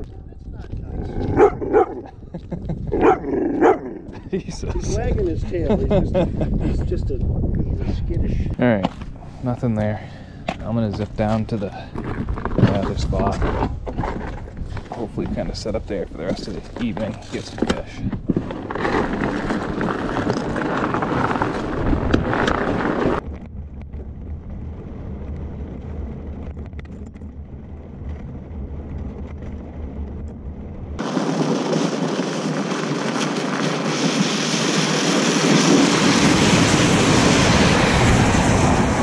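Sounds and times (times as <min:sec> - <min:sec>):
wind rushing over microphone: 0:00.0 - 0:39.0
bike tires hissing on ice: 0:31.0 - 0:38.8.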